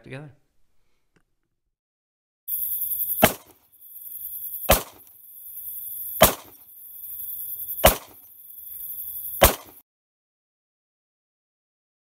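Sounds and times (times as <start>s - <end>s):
insect-like chirring: 2.5s - 9.8s
sharp knock: 3.2s - 3.6s, 4.6s - 5.0s, 6.2s - 6.6s, 7.8s - 8.2s, 9.4s - 9.8s.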